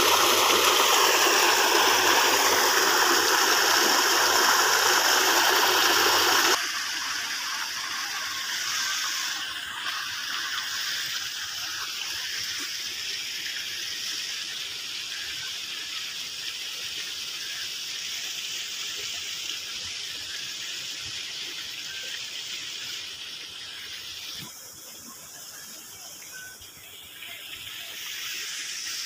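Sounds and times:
shallow water rushing: 0.0 - 11.2.

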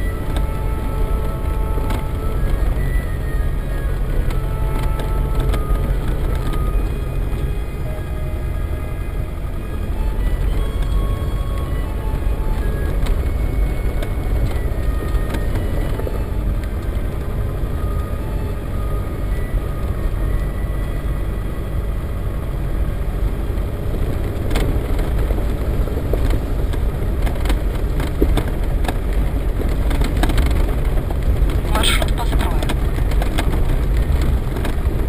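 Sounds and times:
engine and tyre rumble: 0.0 - 35.0.

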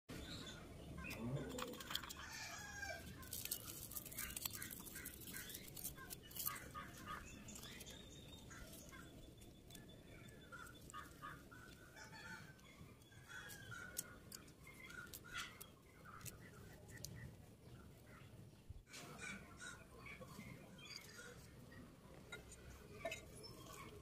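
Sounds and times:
birds calling faintly: 0.1 - 24.0
leaf packet crackling: 3.0 - 9.0.

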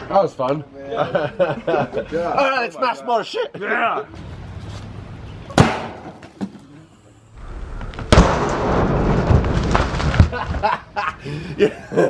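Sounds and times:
sledgehammer smashing watermelon: 5.6 - 6.2.

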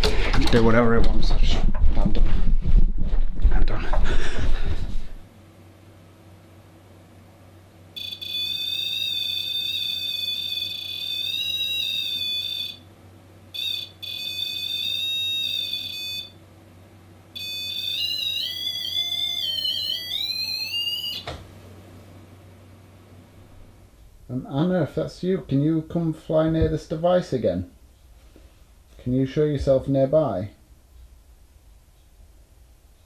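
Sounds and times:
high-pitched electronic alarm tone: 8.0 - 12.9, 13.5 - 16.4, 17.4 - 21.3.

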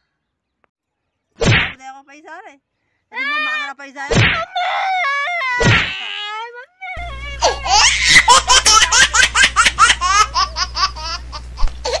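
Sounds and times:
woman laughing hard: 4.5 - 5.6, 6.8 - 12.0.

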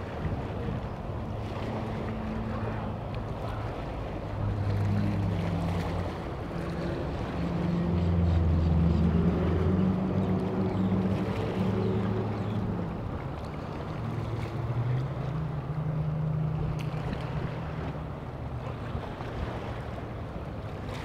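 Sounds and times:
low engine drone: 0.0 - 20.7
water noise: 0.0 - 21.0
wind: 0.0 - 21.0.

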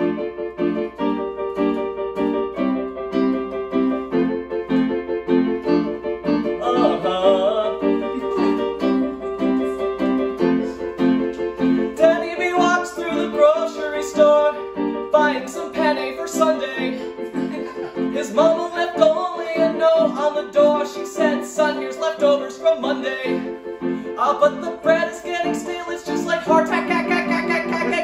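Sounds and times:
electronic keyboard piano chords: 0.0 - 28.0
man singing: 6.6 - 10.8, 11.7 - 17.4, 18.0 - 28.0.

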